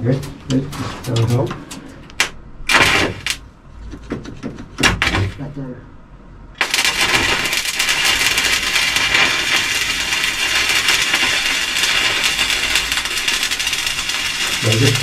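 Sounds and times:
metal grinding crackling hiss: 6.6s - 15.0s.

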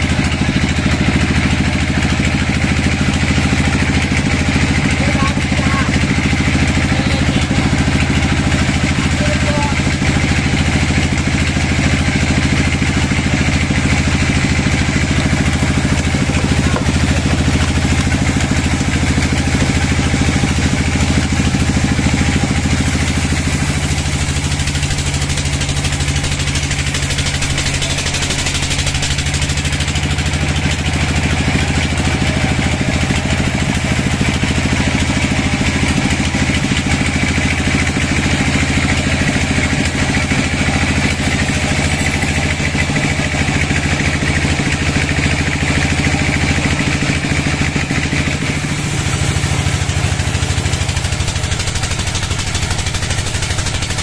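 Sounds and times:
band sawmill drone: 0.0s - 54.0s
saw blade hissing through log: 13.8s - 29.6s, 40.3s - 42.6s, 46.7s - 54.0s.

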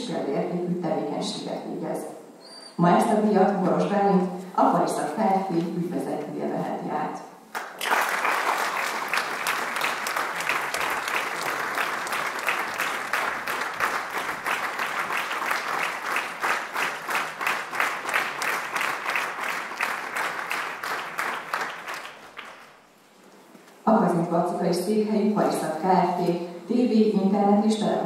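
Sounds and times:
audience applauding: 7.5s - 22.8s.

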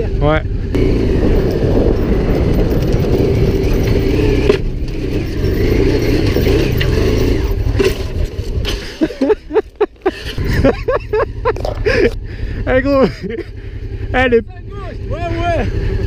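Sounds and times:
motorcycle engine pulling hard: 0.0s - 16.0s
wind noise: 0.8s - 10.9s.

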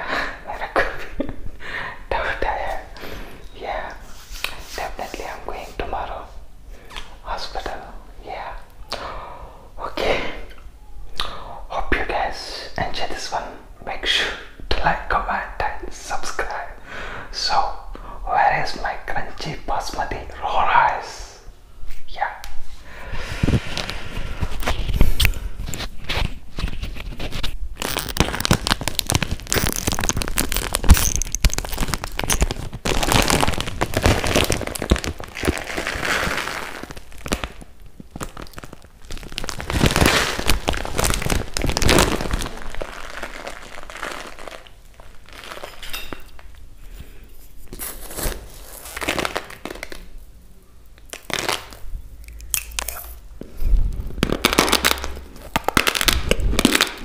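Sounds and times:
plastic bag crinkling: 23.4s - 46.7s, 47.6s - 50.3s, 51.0s - 57.0s
rice grains crunching: 27.8s - 46.4s.

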